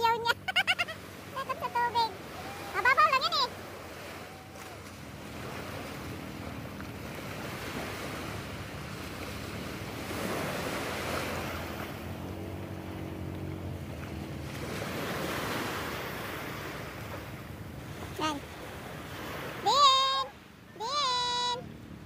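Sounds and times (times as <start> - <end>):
small waves breaking on rocks: 1.0 - 13.5.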